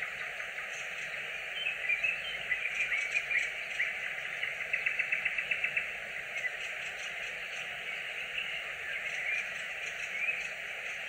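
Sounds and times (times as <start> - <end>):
nightingale singing: 0.0 - 11.0
steady background hiss: 0.0 - 11.0.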